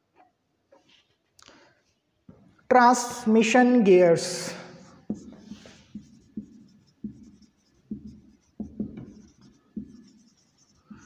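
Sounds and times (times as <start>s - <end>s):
marker writing on whiteboard: 4.8s - 11.0s.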